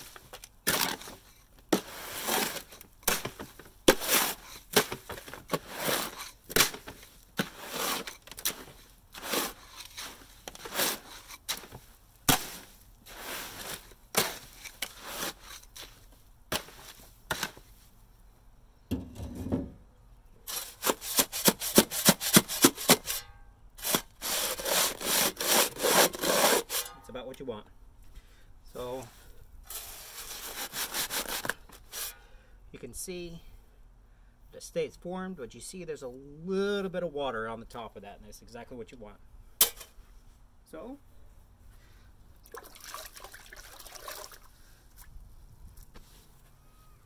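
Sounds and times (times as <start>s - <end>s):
hand trowel scraping: 0.0s - 17.7s, 20.5s - 27.0s, 29.7s - 32.2s
shovel scraping concrete in wheelbarrow: 0.0s - 17.7s, 20.5s - 27.0s, 29.7s - 32.2s.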